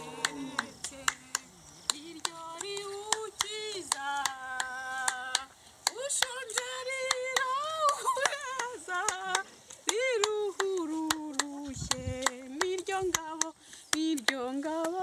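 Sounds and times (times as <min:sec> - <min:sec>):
hands clapping: 0:00.0 - 0:15.0
woman singing: 0:00.0 - 0:15.0.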